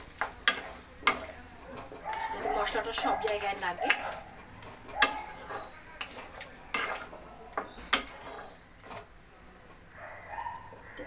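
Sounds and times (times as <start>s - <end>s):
spatula scraping a pan: 0.0s - 9.4s
spatula knocking against pan: 2.9s - 4.2s, 4.9s - 6.2s, 6.8s - 8.3s.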